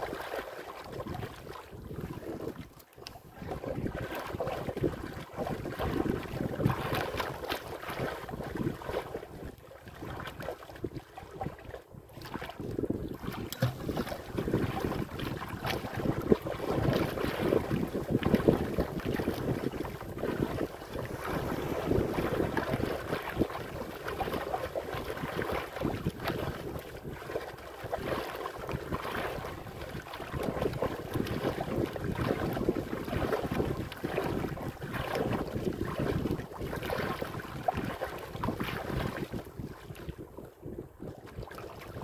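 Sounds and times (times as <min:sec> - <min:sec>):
waves splashing against a hull: 0:00.0 - 0:42.0
wind buffeting the microphone: 0:00.8 - 0:42.0.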